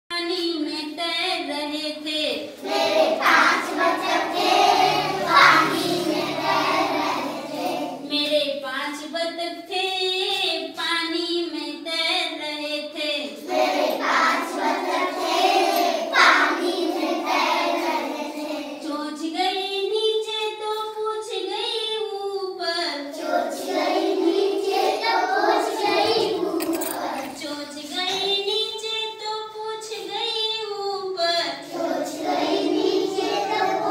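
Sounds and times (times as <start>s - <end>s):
children singing: 2.4s - 8.1s, 13.2s - 18.9s, 23.0s - 28.6s, 31.6s - 33.9s.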